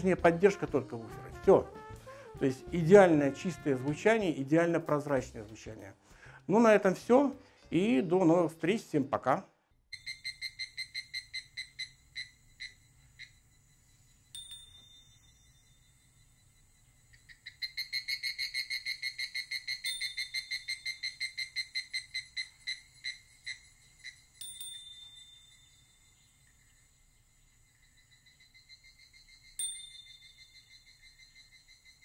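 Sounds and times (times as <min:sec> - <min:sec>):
high pulsing chirping tone: 0:09.9 - 0:32.0.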